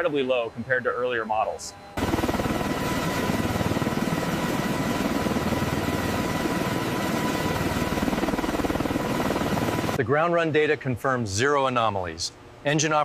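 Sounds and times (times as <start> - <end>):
high turbine whine: 0.0 - 10.0
helicopter rotor beating: 2.0 - 10.0.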